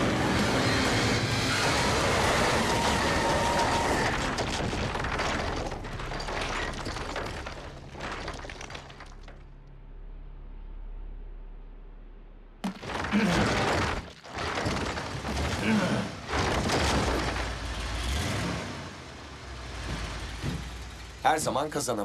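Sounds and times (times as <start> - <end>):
falling debris: 0.0 - 9.6, 12.6 - 18.3.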